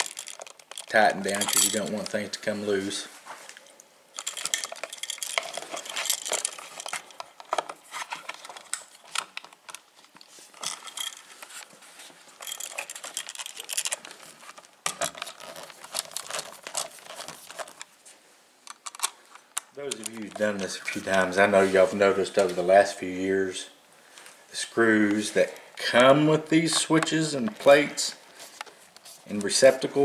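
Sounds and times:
metallic clicks and rattles: 0.0 - 2.3, 3.6 - 11.8, 12.4 - 17.9, 18.6 - 21.0.

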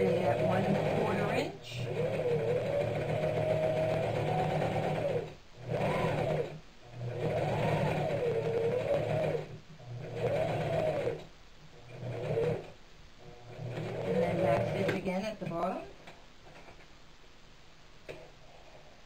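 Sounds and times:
electric sewing machine stitching: 0.0 - 11.3, 11.9 - 12.8, 13.4 - 15.1.

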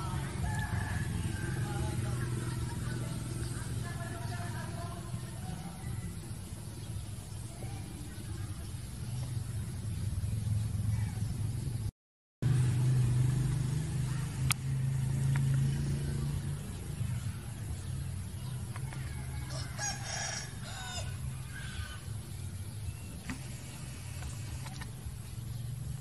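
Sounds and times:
rooster crowing: 0.0 - 2.2, 18.8 - 22.1
steady low hum: 0.0 - 26.0.

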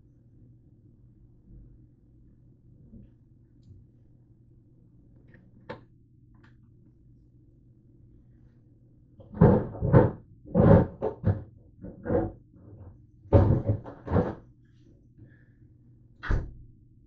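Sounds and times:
cupboard knocks and thumps: 13.3 - 14.4.

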